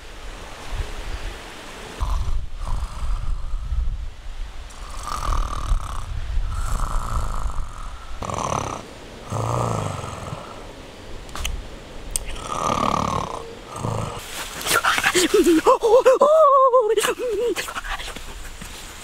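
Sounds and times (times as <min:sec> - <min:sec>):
man snoring: 0:02.0 - 0:03.6, 0:04.8 - 0:10.6, 0:12.3 - 0:14.2.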